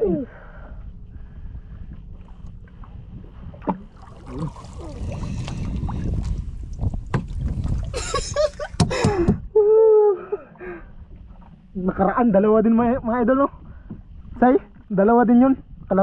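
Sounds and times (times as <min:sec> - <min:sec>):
water moving around boat: 0:00.0 - 0:16.0
wind on microphone: 0:00.8 - 0:09.6
knocks from gear in boat: 0:06.8 - 0:07.6, 0:08.7 - 0:09.5.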